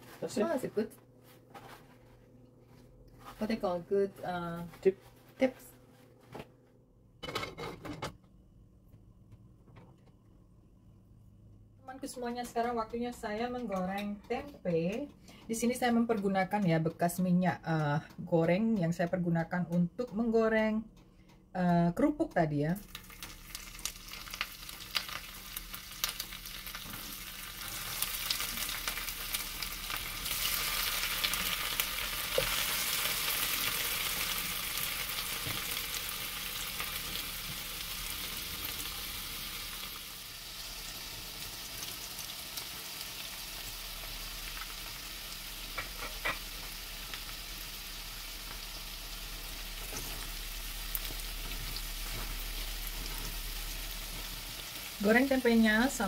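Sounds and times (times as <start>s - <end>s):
food frying in hot oil: 22.8s - 56.0s.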